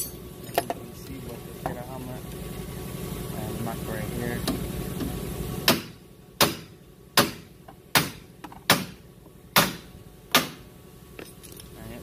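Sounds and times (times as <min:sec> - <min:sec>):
hammer striking metal: 0:05.7 - 0:09.0.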